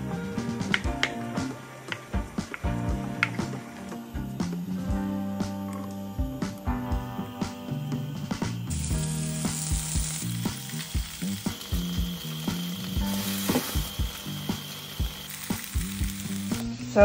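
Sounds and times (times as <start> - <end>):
soft background music: 0.0 - 17.0
food sizzling in oil: 7.7 - 17.0.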